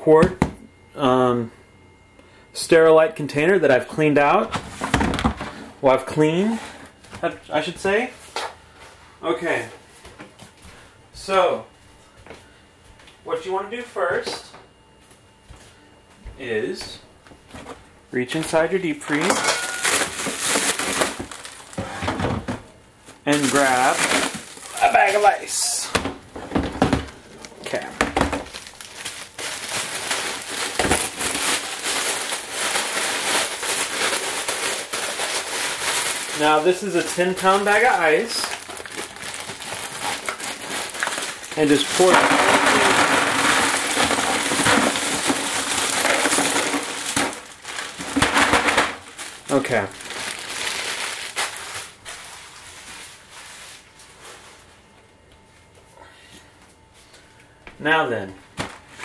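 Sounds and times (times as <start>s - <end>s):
plastic bag of ice crinkling: 18.4s - 22.0s, 23.3s - 25.9s, 26.8s - 54.7s.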